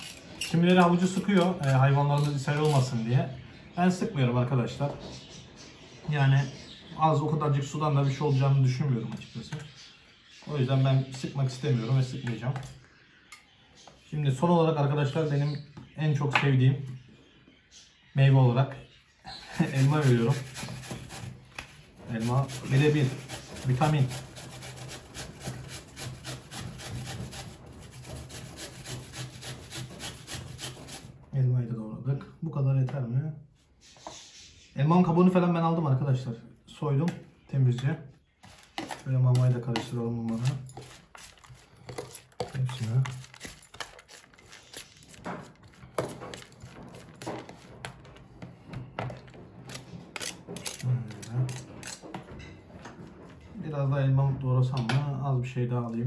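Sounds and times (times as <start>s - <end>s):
apple grated on metal grater: 0.0s - 2.9s, 19.4s - 31.2s, 38.4s - 48.2s, 49.0s - 52.0s.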